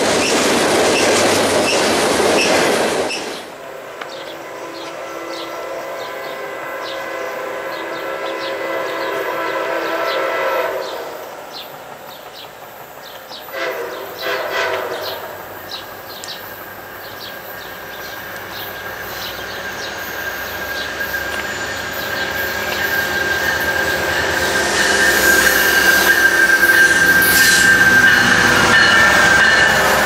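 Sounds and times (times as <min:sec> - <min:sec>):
train rumble: 0:00.0 - 0:30.0
train air horn blasts: 0:03.7 - 0:11.4, 0:13.5 - 0:15.6, 0:20.8 - 0:30.0.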